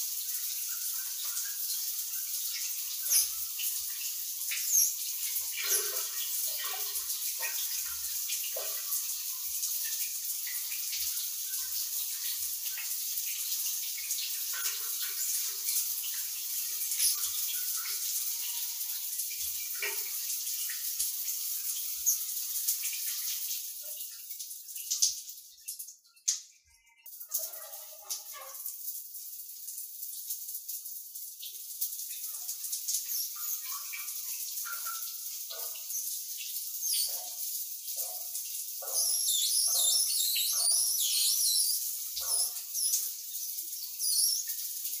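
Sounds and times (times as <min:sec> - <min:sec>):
water splashes and drips: 0:00.0 - 0:45.0
shower spray hissing: 0:32.4 - 0:36.0, 0:38.8 - 0:44.8.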